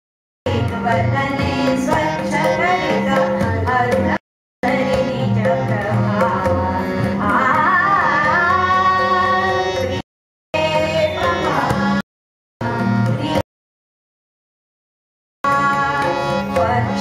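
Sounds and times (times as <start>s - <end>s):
woman singing: 0.5s - 9.8s, 10.6s - 12.0s, 15.5s - 17.0s
tabla: 0.5s - 10.0s, 10.6s - 12.0s, 12.6s - 13.4s, 15.4s - 17.0s.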